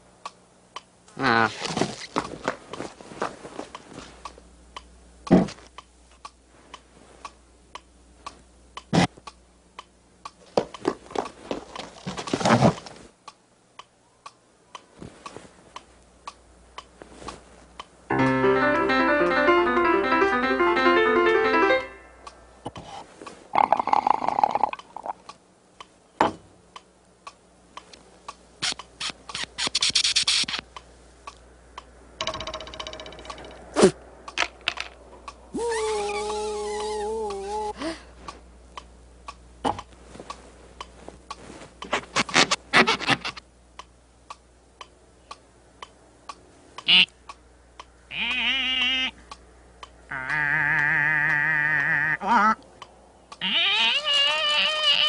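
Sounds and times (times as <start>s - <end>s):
fast piano playing: 18.1s - 22.1s.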